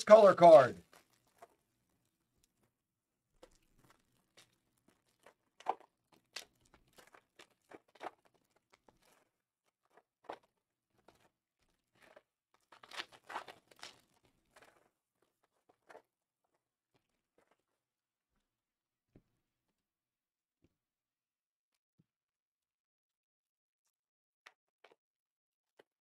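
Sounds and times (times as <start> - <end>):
foil wrappers crinkling and tearing: 0.8 - 1.6, 3.4 - 17.7.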